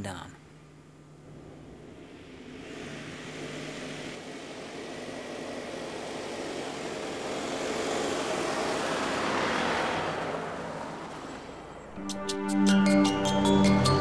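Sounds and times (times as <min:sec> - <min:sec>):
car engine passing by: 0:01.2 - 0:12.0
tyres on sandy track: 0:01.2 - 0:12.0.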